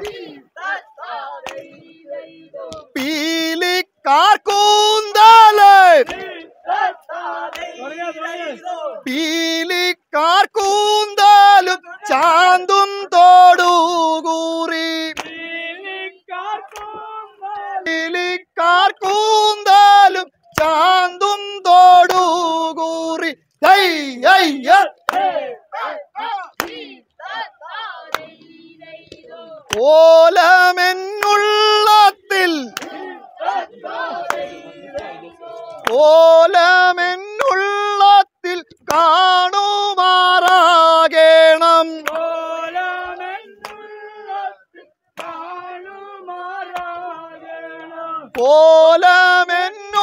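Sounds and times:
loud long held cry: 0.0s - 2.9s, 4.3s - 9.1s, 15.3s - 18.0s, 24.2s - 38.0s, 42.2s - 50.0s
voices chanting rhythmic syllables: 0.0s - 50.0s.

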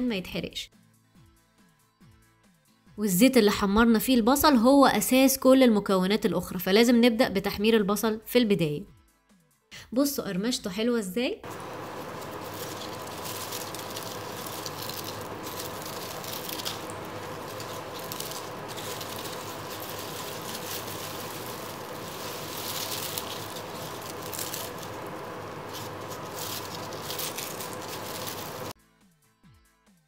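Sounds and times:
fried onions crackling and rustling: 11.4s - 28.8s.

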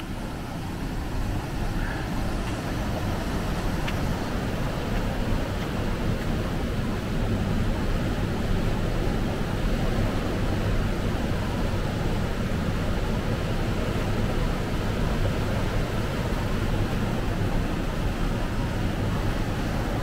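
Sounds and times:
water rushing over waterfall: 0.0s - 20.0s.

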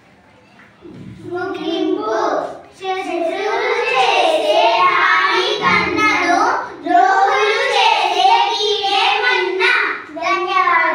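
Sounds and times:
children singing: 1.2s - 9.6s.

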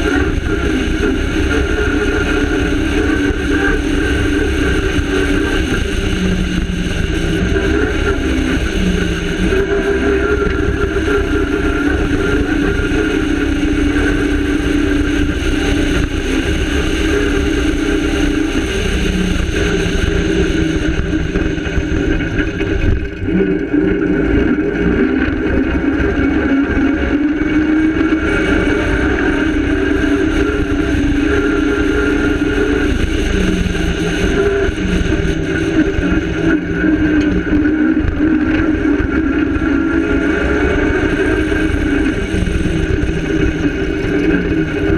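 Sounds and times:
rally car engine revving: 0.0s - 44.9s
tyres rumbling on rough ground: 0.0s - 44.9s.

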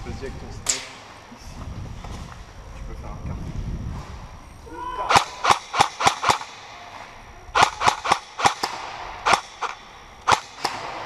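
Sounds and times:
airsoft gun shots: 5.1s - 6.8s, 7.5s - 11.0s.

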